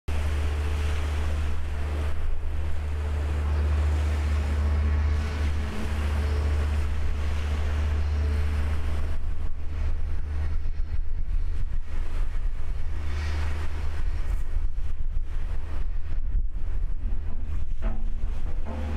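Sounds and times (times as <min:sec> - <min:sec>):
low hum of machinery: 0:00.1 - 0:18.9
wind buffeting microphone: 0:00.1 - 0:18.9.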